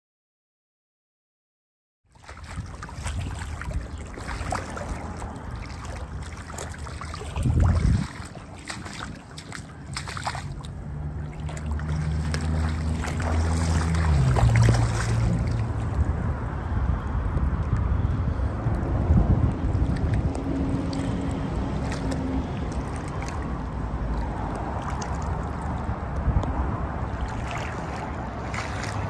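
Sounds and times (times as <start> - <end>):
water trickling over concrete: 2.1 - 29.0
wind buffeting microphone: 2.2 - 29.0.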